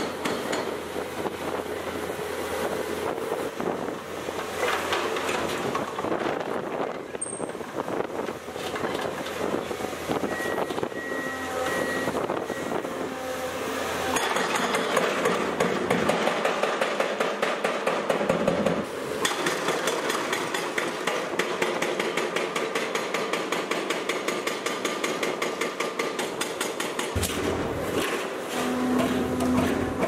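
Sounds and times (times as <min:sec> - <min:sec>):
hydraulic breaker hammering concrete: 0:00.0 - 0:00.8, 0:14.1 - 0:30.0
diesel engine running: 0:27.2 - 0:30.0.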